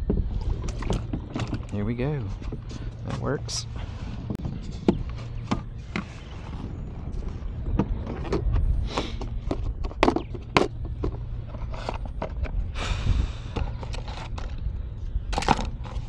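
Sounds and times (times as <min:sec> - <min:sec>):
wind rumble on microphone: 0:00.0 - 0:16.0
plastic tackle box opened: 0:13.5 - 0:14.7, 0:15.3 - 0:16.0.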